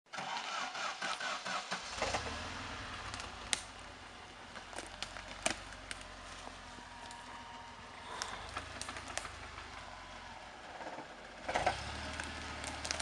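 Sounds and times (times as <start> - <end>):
engine starting and idling: 0.1 - 4.7, 7.9 - 13.0.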